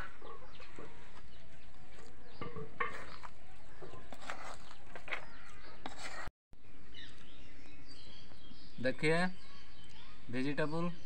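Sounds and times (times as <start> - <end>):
metal ladle scraping a steel pot: 2.4 - 6.3.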